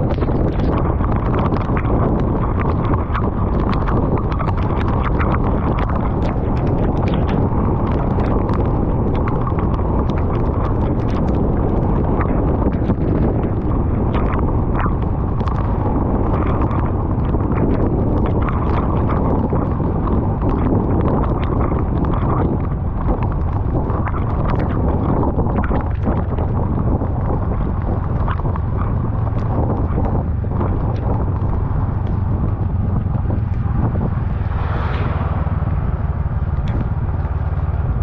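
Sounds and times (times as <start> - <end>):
raindrops ticking on camera: 0.0 - 38.0
wind buffeting microphone: 0.0 - 38.0.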